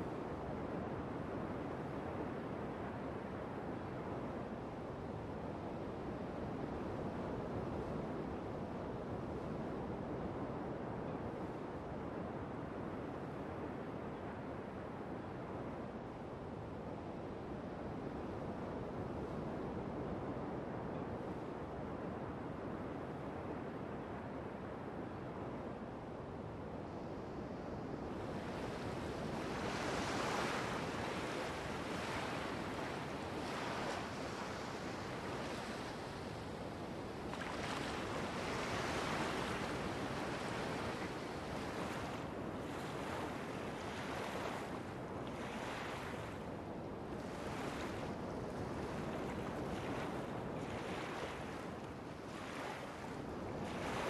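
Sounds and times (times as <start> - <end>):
wind: 0.0 - 54.0
waves washing and splashing: 37.0 - 46.4.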